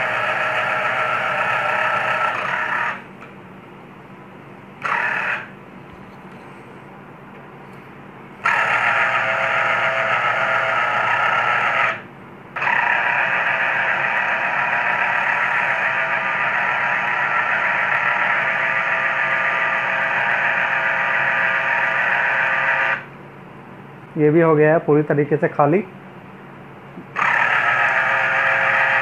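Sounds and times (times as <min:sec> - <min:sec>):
citrus juicer motor whining: 0:00.0 - 0:03.3, 0:04.8 - 0:06.4, 0:08.4 - 0:23.1, 0:27.0 - 0:29.0.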